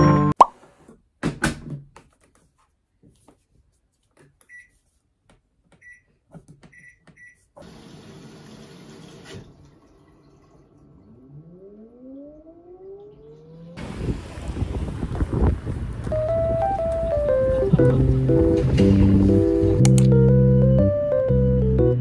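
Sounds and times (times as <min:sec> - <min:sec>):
washing machine rushing noise: 0:13.2 - 0:16.0
small button clicks: 0:19.8 - 0:20.2.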